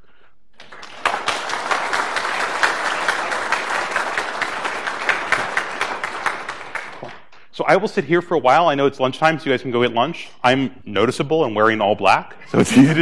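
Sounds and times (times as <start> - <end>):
audience applauding: 0.6 - 7.3.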